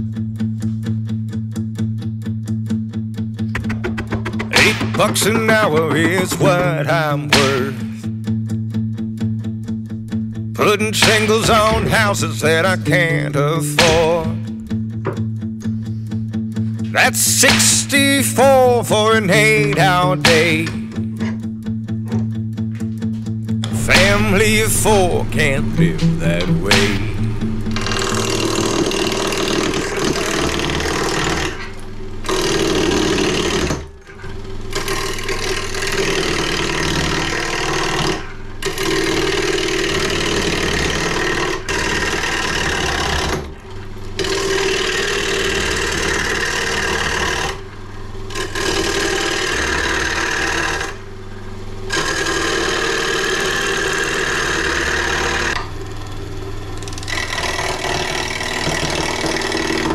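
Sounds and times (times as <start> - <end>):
gouge cutting wood on lathe: 3.6 - 8.1, 23.6 - 33.9, 34.7 - 43.5, 44.2 - 51.1, 51.8 - 55.6, 56.8 - 59.9
lathe motor hum: 23.6 - 59.9.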